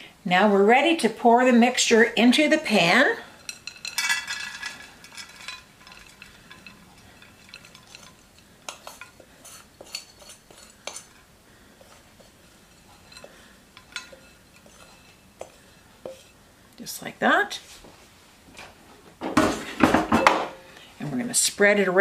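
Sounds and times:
metal spoon scraping glass: 3.4s - 11.2s, 11.8s - 16.4s.

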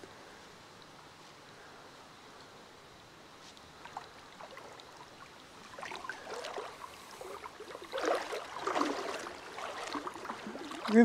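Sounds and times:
creek water gurgling and splashing: 3.7s - 11.0s.

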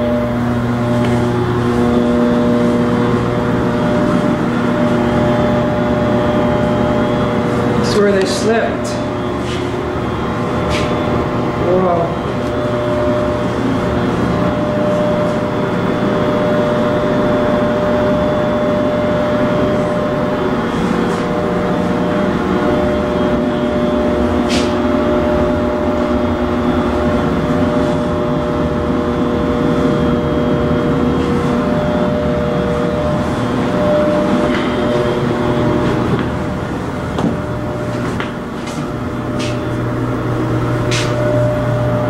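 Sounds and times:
machinery hum: 0.0s - 42.0s.

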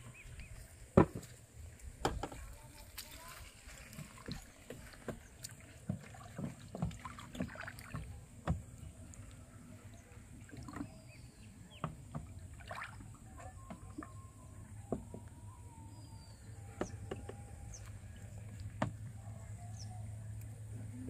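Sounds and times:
low background hum: 0.0s - 21.0s
knocks against wooden boat: 1.0s - 1.3s, 2.0s - 2.4s, 4.2s - 8.7s, 16.8s - 17.5s, 18.8s - 19.0s
small water splashes: 2.2s - 14.2s.

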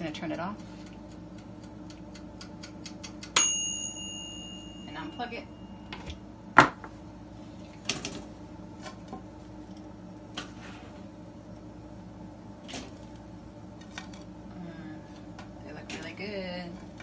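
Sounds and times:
tongs clicking on wire rack: 0.8s - 3.4s.

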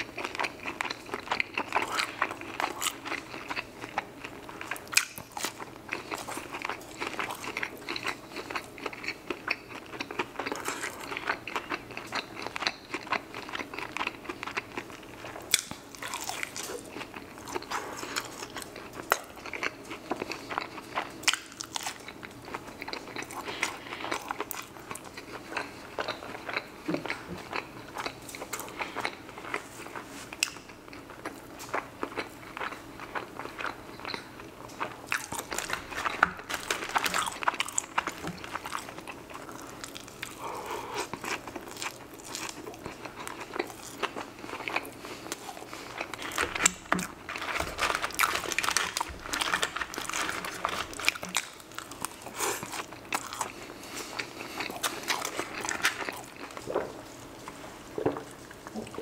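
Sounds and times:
crunchy chewing and mouth clicks: 0.0s - 59.0s.

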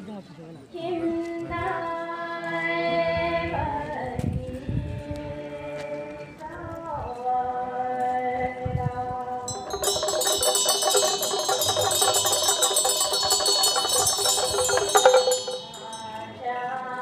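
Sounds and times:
metal percussion roll: 9.5s - 16.4s.

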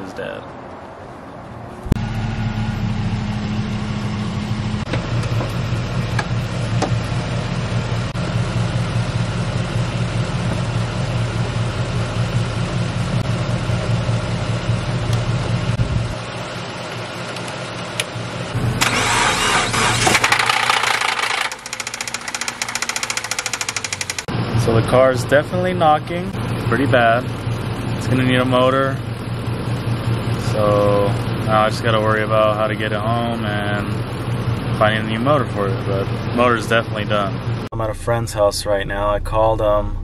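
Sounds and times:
car engine idling: 1.8s - 40.0s
engine revving burst: 18.8s - 24.3s
engine knocking ticks: 20.4s - 24.3s.

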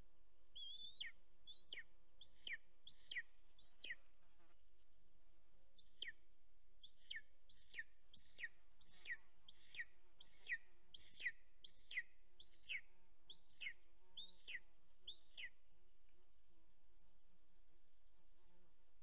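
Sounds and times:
eagle high whistled calls: 0.6s - 4.0s, 5.8s - 6.2s, 6.8s - 15.5s.

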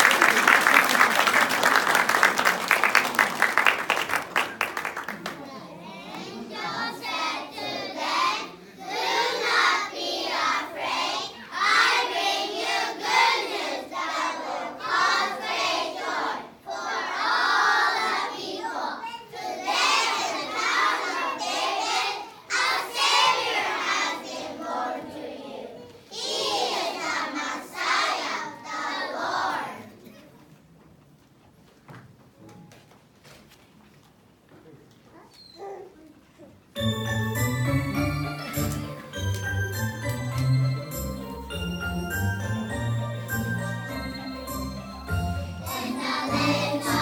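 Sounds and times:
children's voices together: 5.2s - 30.6s, 45.6s - 47.0s.

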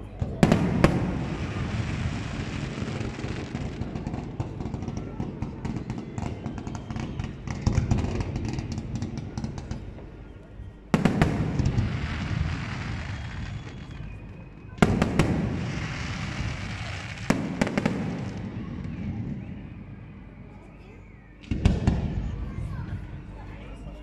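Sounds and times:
fireworks crackling: 0.0s - 9.8s, 11.0s - 19.5s.

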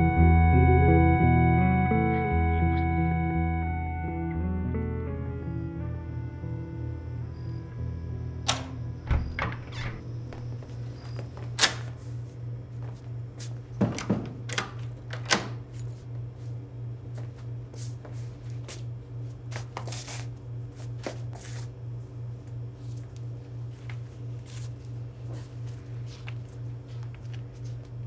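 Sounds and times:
low pulsing hum: 0.0s - 13.8s
door opening and shutting: 8.4s - 11.9s, 13.8s - 15.7s
latch and lock clicks: 8.5s - 10.0s, 14.0s - 15.6s
soft footsteps: 22.4s - 28.0s.

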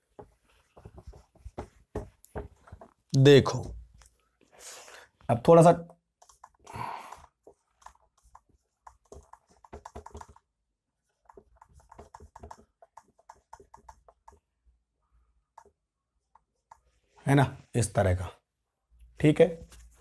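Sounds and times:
marker writing on whiteboard: 0.0s - 3.8s, 6.0s - 17.2s.

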